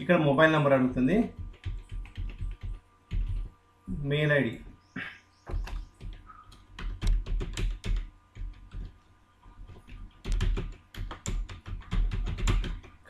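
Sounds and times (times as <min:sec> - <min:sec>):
keyboard typing clicks: 0:01.3 - 0:03.5, 0:05.5 - 0:09.0, 0:09.8 - 0:13.0.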